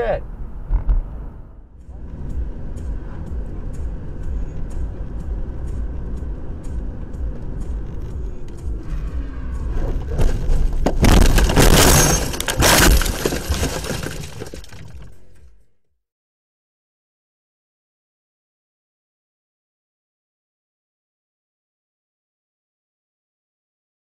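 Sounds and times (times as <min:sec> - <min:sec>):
road rumble inside car: 0:00.0 - 0:13.9
car crash impacts: 0:09.9 - 0:15.2
glass breaking: 0:10.9 - 0:15.1.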